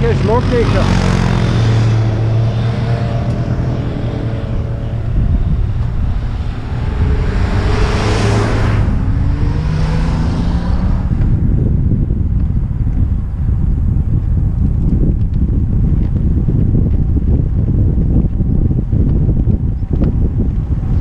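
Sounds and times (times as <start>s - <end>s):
van passing by: 0.0s - 12.0s
vehicle engines running: 0.0s - 21.0s
wind noise on microphone: 0.0s - 21.0s.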